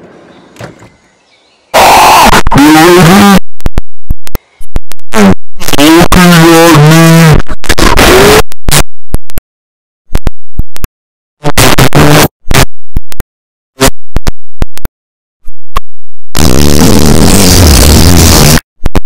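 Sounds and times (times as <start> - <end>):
harsh distorted noise bursts: 1.7 - 3.8, 4.4 - 8.8, 11.4 - 12.7, 16.4 - 19.0.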